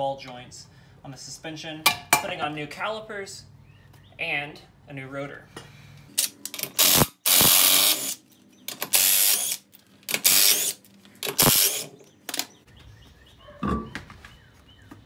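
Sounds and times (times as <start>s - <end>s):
impact wrench bursts: 6.2s - 12.0s.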